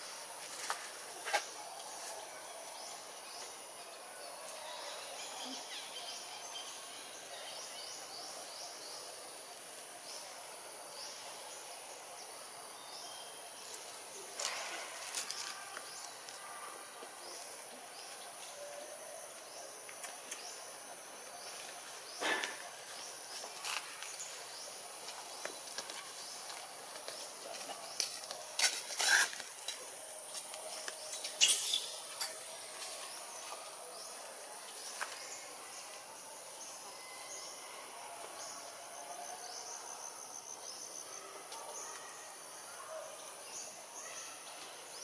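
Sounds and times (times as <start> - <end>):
small birds chirping: 12.8 - 36.0.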